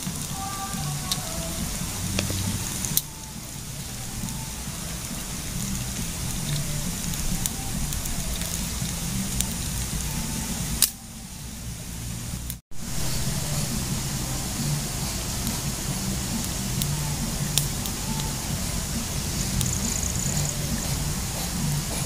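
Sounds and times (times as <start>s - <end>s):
twigs snapping and crackling: 10.8s - 11.0s.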